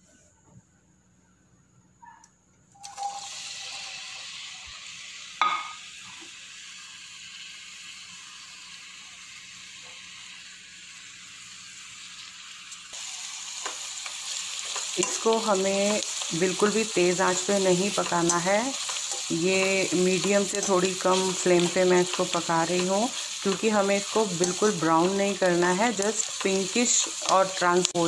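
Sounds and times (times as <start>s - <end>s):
onions sizzling in hot oil: 2.8s - 28.0s
spatula stirring: 14.4s - 28.0s.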